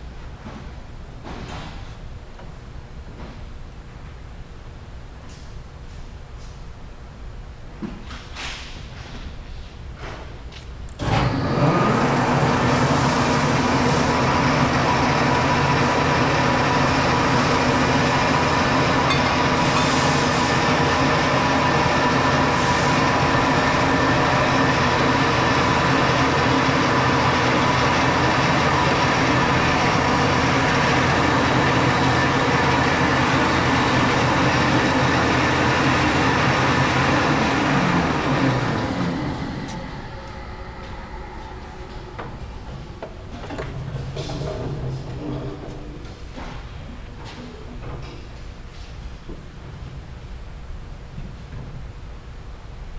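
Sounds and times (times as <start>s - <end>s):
coolant pump running: 11.0s - 46.2s
bandsaw running: 11.2s - 42.3s.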